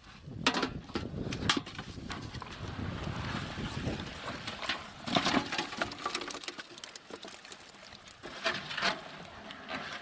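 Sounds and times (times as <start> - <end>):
fish slapping into metal bucket: 4.4 - 9.3.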